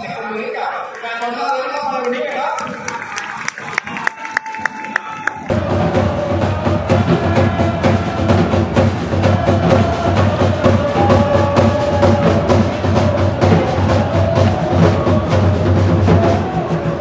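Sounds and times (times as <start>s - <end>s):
fast drum beat: 5.5s - 17.0s.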